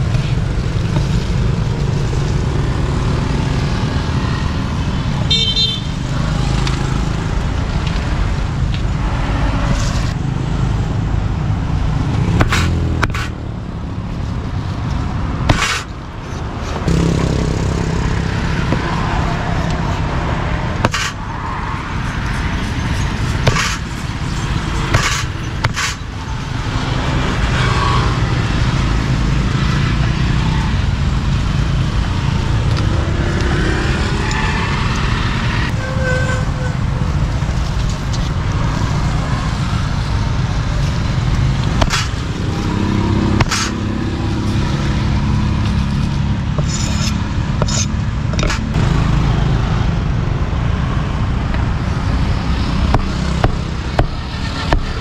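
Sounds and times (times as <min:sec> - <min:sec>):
street traffic rumble: 0:00.0 - 0:55.0
sharp knocks: 0:23.4 - 0:23.9, 0:24.9 - 0:26.0, 0:41.8 - 0:42.3, 0:52.8 - 0:55.0.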